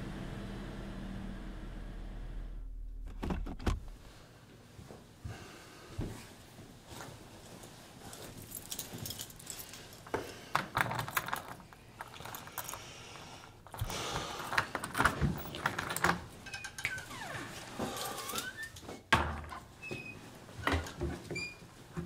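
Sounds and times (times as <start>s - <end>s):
keys jangling in a door lock: 8.2s - 10.0s, 10.7s - 12.8s
lock squeak: 16.4s - 17.5s, 18.1s - 18.8s.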